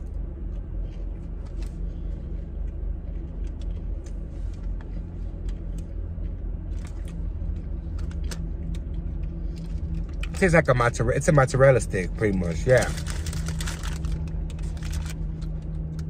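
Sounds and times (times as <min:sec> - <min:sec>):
car engine idling: 0:00.0 - 0:16.0
chewing crispy food: 0:12.5 - 0:15.9.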